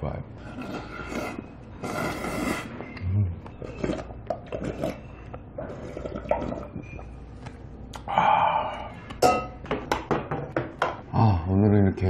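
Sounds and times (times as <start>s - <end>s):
loud breathy slurp: 0.4s - 3.0s, 3.6s - 6.7s
brass bowl clanging: 9.2s - 9.6s.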